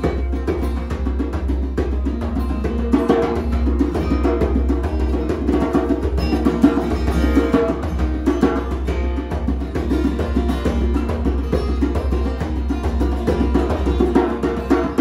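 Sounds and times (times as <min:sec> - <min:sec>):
acoustic guitar: 0:00.0 - 0:15.0
djembe drum strikes: 0:00.0 - 0:15.0.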